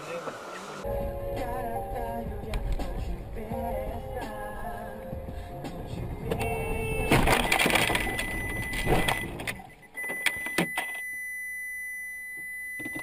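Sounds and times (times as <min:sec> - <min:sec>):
high electronic beep: 0:06.4 - 0:13.0.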